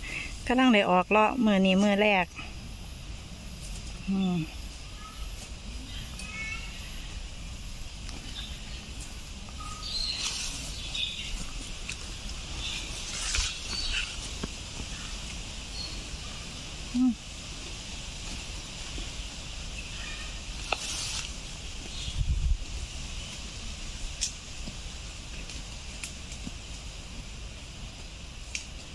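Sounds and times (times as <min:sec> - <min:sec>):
steady low rumble: 0:00.0 - 0:28.9
bird chirps: 0:09.5 - 0:11.5, 0:12.6 - 0:14.3.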